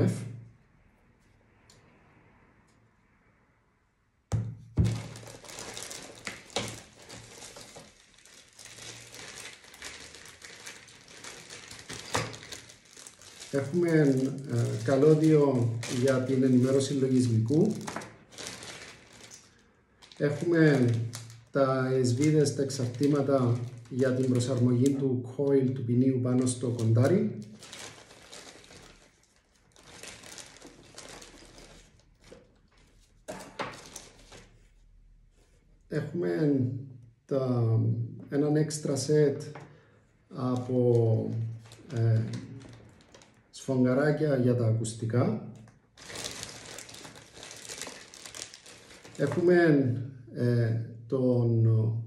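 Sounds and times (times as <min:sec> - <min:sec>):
packaging crinkling: 0:04.8 - 0:25.0, 0:26.2 - 0:34.7, 0:40.4 - 0:43.6, 0:45.6 - 0:49.5.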